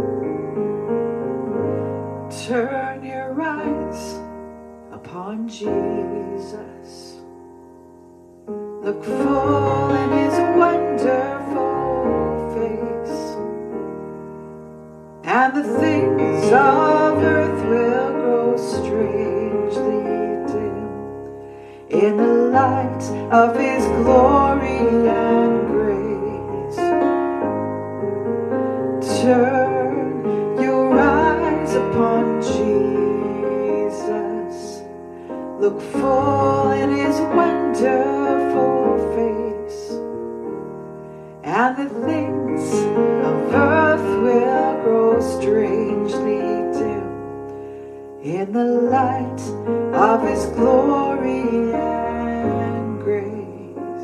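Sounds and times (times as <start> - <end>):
digital piano chords: 0.0 - 54.0
woman singing softly: 2.3 - 7.3, 8.8 - 13.5, 48.2 - 54.0.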